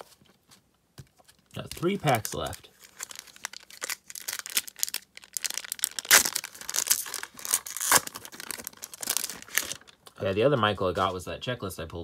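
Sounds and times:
foil wrapper crinkling and ripping: 1.6s - 10.0s.

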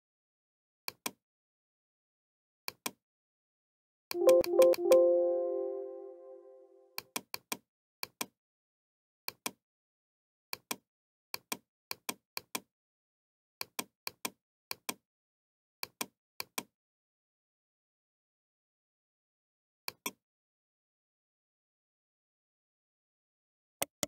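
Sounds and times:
musical tone: 4.2s - 6.8s.

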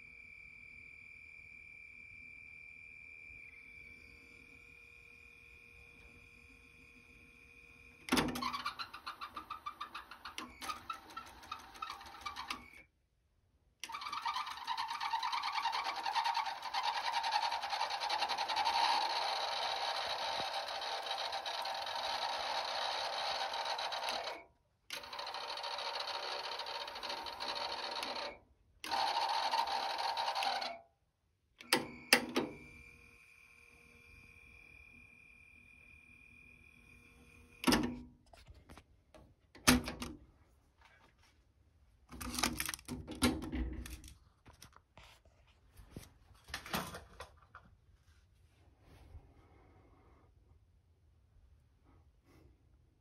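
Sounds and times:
cassette deck running a tape: 4.5s - 12.8s, 13.8s - 30.8s, 31.6s - 38.1s.

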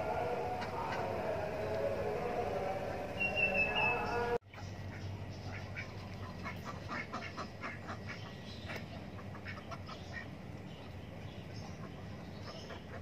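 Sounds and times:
ducks quacking: 3.0s - 10.4s, 11.6s - 13.0s.

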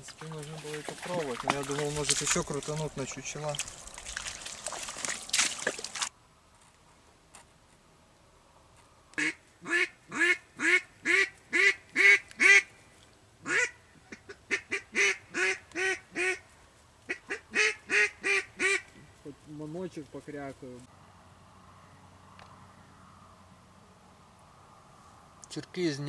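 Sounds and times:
rustling: 0.0s - 7.9s
duck call quacking: 9.2s - 12.7s, 13.4s - 16.4s, 17.1s - 18.9s.

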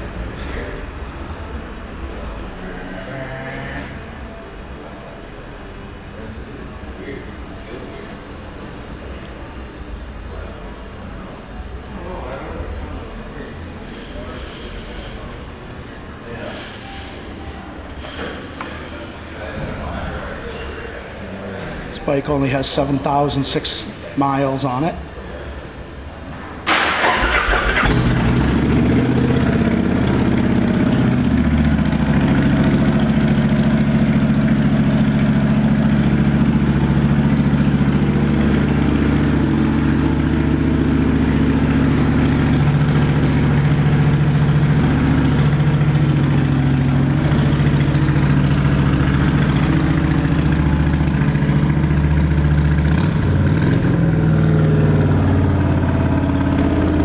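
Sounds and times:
engine starter burst: 26.7s - 28.4s
motorcycle engine idling: 27.1s - 57.0s.

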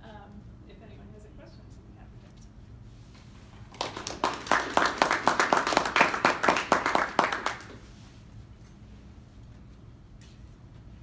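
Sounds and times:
audience applauding: 3.7s - 7.8s.

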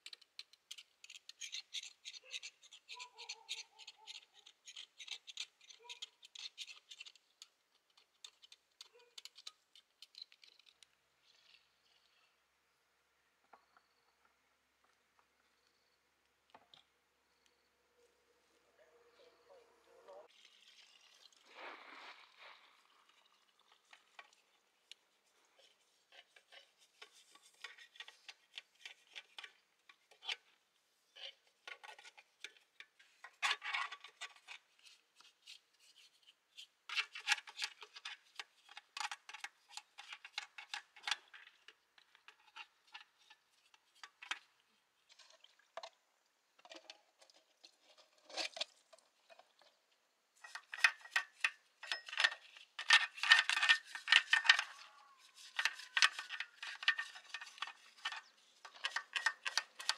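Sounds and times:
metal tools clinking and scraping: 50.4s - 59.9s.

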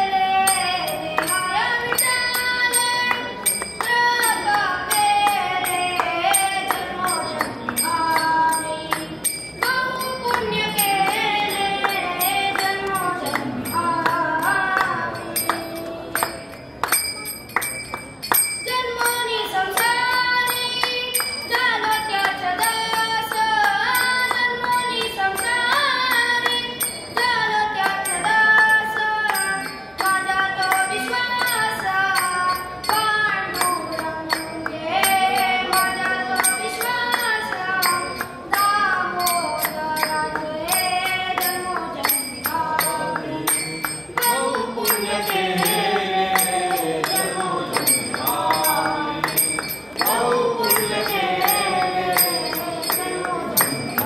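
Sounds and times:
boy singing into a microphone: 0.0s - 17.6s, 18.4s - 54.0s.

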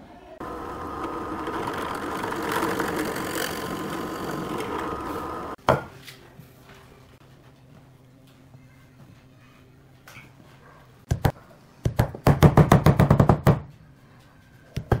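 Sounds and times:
power tool running: 0.4s - 5.6s.

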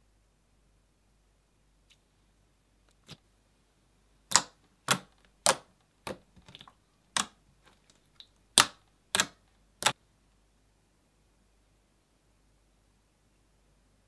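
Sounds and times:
slime wet pops: 4.3s - 7.4s, 8.1s - 10.0s.

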